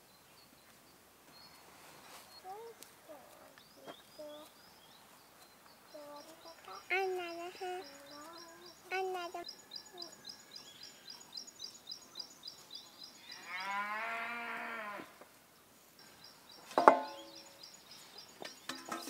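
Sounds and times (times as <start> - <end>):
faint high chirping: 0.0 - 13.9
cow mooing: 13.4 - 15.1
sharp knock: 16.8 - 17.3.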